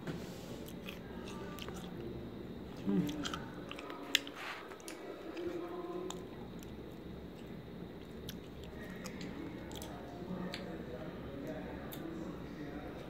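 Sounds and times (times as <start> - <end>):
chewing crunchy seeds: 0.6 - 10.7.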